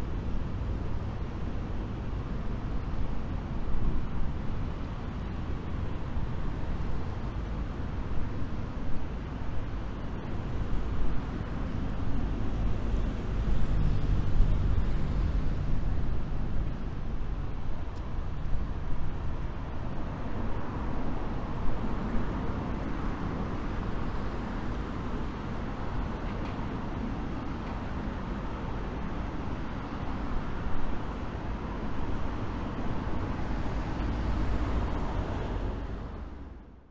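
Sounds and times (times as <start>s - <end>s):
road traffic rumble: 0.0s - 36.9s.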